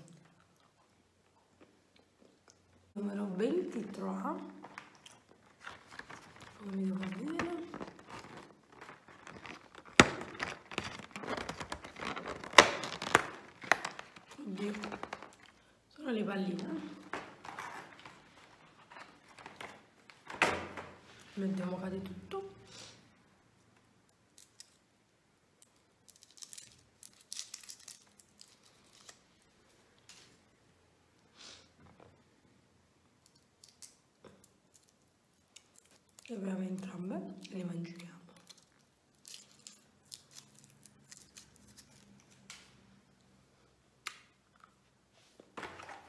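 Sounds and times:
wrapper crinkling and rustling: 4.6 - 15.7, 16.4 - 20.3, 26.0 - 29.6, 38.4 - 42.5
cardboard tearing and crinkling: 5.4 - 15.4.

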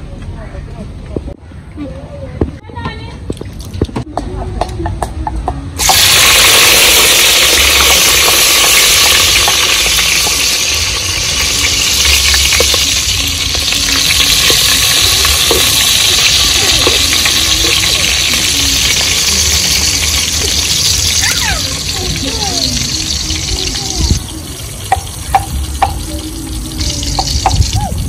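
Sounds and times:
food sizzling in hot oil: 5.8 - 28.0.

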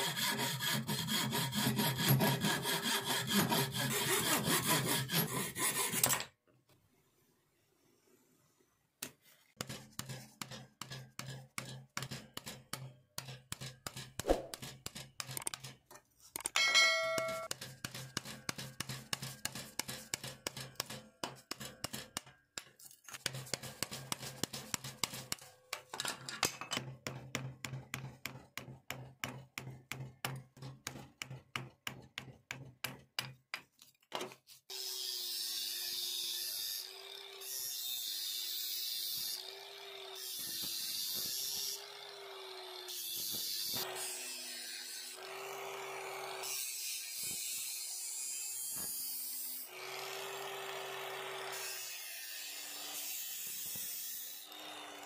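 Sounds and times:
blade scraping wood: 0.0 - 6.3.

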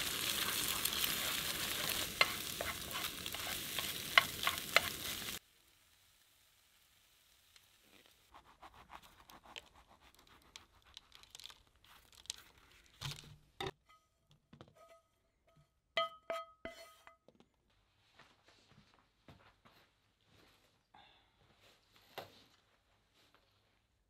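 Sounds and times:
utensils scraping cookware: 0.3 - 5.2.

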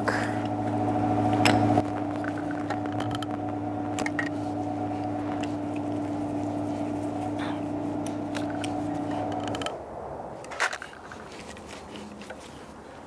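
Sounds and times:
steady hum: 0.0 - 10.4.

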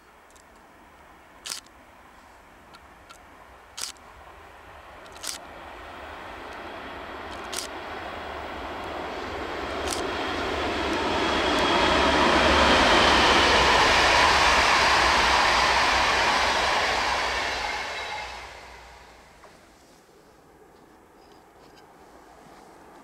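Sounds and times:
train wheels rumbling on rails: 2.6 - 19.7.

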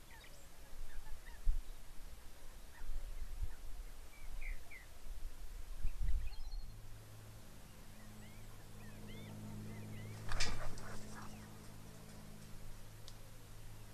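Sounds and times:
wind rumble on microphone: 0.6 - 6.8
electrical hum: 4.1 - 13.9
faint bird chirps: 5.8 - 6.8.

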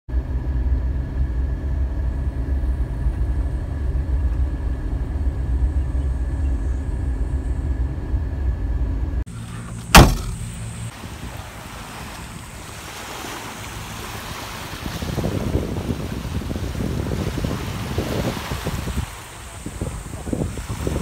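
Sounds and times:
vehicle engine rumbling: 0.1 - 21.0
wind and surf hissing: 1.4 - 21.0
sharp loud knock: 9.9 - 10.4.

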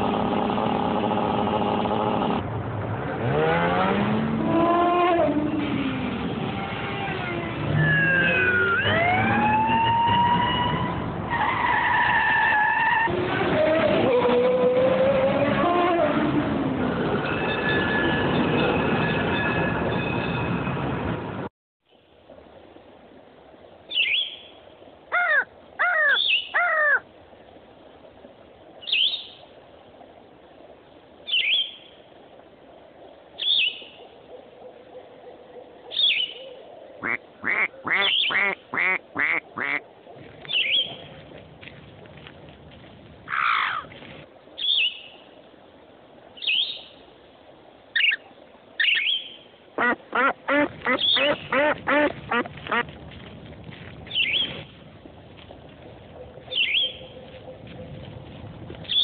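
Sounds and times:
birds calling harshly: 25.1 - 27.0, 43.3 - 43.9, 48.8 - 52.8, 56.5 - 57.2.

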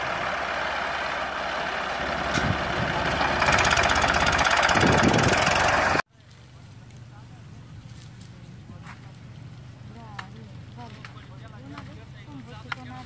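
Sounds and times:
tractor diesel engine under load: 0.0 - 6.1.

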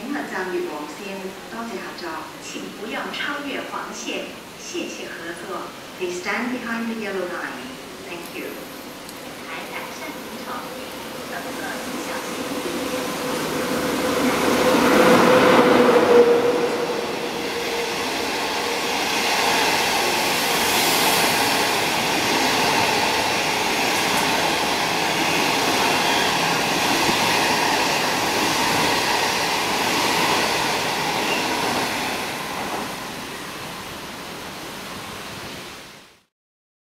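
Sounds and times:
electric locomotive passing: 0.0 - 35.3
train coaches rolling past: 4.6 - 35.3.

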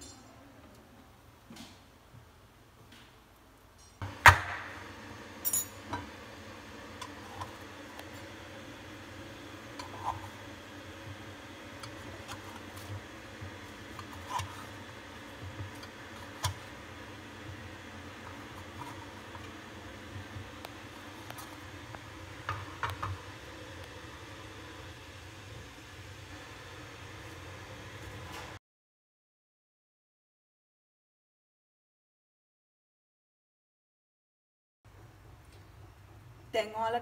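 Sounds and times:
steady low hum: 4.0 - 28.6.

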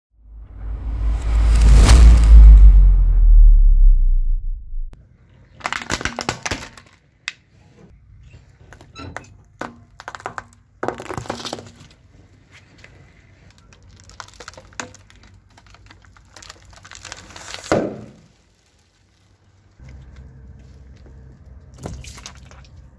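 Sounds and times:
tyre crushing objects: 14.0 - 18.4.

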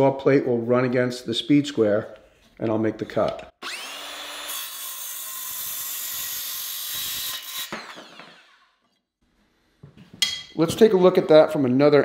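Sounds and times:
circular saw cutting wood: 3.6 - 8.8.

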